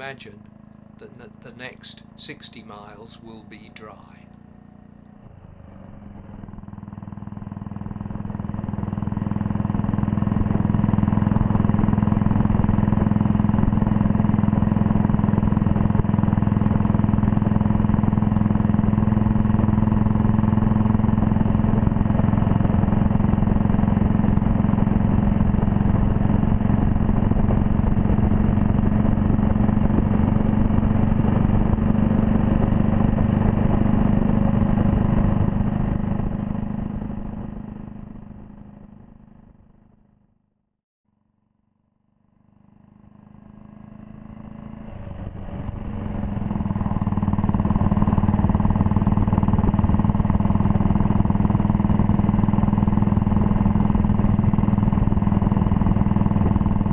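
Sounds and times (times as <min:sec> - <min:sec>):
motorcycle engine running: 0:00.0 - 0:40.4, 0:41.1 - 0:56.9.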